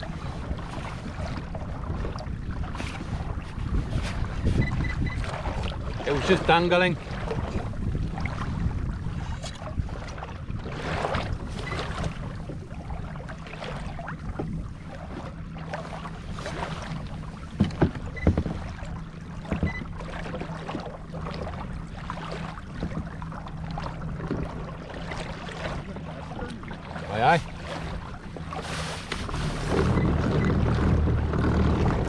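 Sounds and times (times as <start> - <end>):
wind on microphone: 0.0 - 13.2
water lapping against kayak: 0.0 - 32.0.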